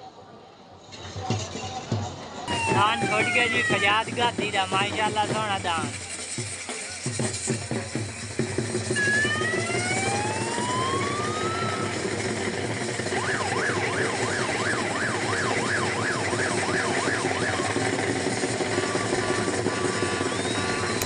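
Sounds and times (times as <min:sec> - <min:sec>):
steady background din: 0:00.6 - 0:21.0
siren wailing and warbling: 0:02.5 - 0:05.9, 0:09.0 - 0:21.0.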